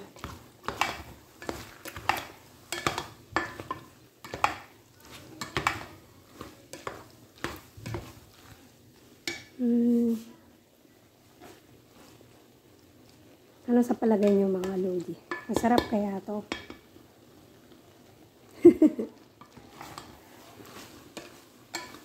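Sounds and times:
spatula stirring macaroni in pot: 0.0 - 22.0
scrapes and knocks against pot: 0.1 - 9.6, 19.4 - 22.0.

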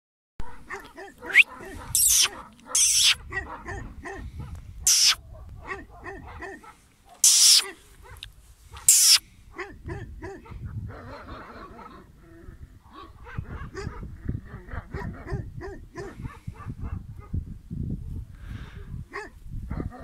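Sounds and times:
dogs barking: 0.4 - 12.1, 12.9 - 17.4, 19.1 - 20.0
hissing bursts: 2.0 - 3.2, 4.9 - 5.2, 7.2 - 7.6, 8.8 - 9.2.

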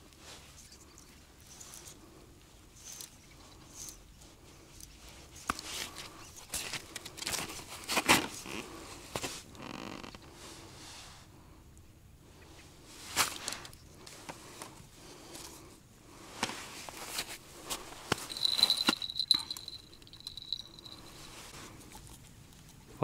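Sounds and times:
thin steady high tone: 18.2 - 21.5.

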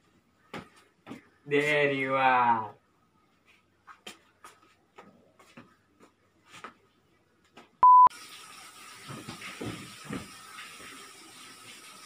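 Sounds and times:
loud pure beep tone: 7.8 - 8.1.

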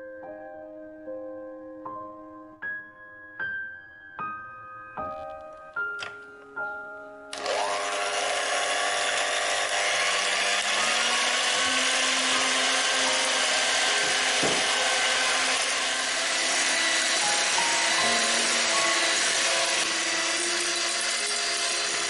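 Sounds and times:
electric hand mixer whisking: 7.3 - 22.0.

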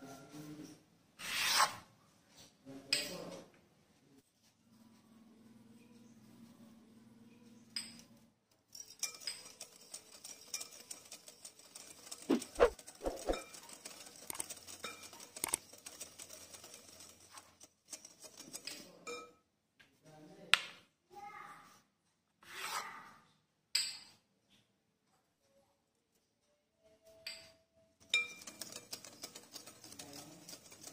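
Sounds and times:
utensils clinking in glass bowl: 8.7 - 10.9.

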